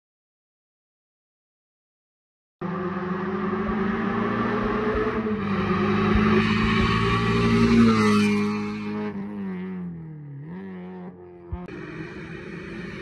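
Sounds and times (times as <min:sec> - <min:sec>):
rally car engine pulling hard: 0:02.6 - 0:13.0.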